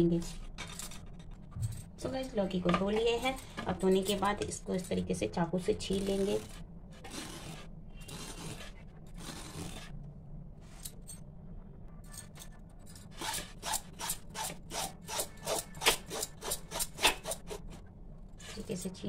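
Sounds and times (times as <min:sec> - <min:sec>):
knife scraping gourd skin: 0:05.9 - 0:10.0, 0:13.2 - 0:17.7.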